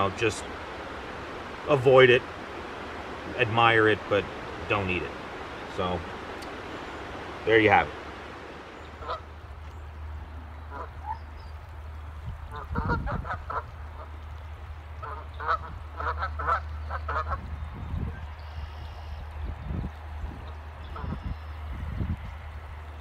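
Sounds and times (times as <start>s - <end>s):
geese honking: 0.0s - 9.4s, 10.6s - 11.4s, 12.5s - 14.2s, 15.0s - 17.4s
low steady rumble: 0.0s - 23.0s.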